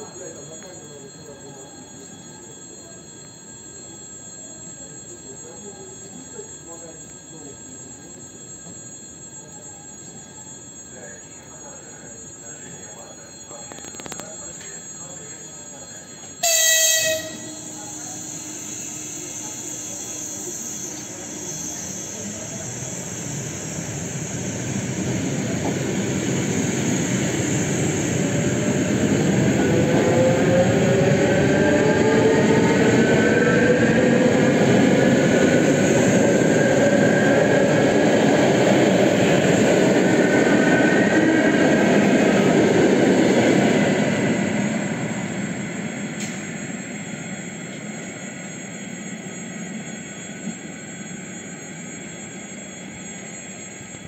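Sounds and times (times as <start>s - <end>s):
traction motor whine: 10.0s - 54.0s
train horn blast: 16.4s - 17.6s.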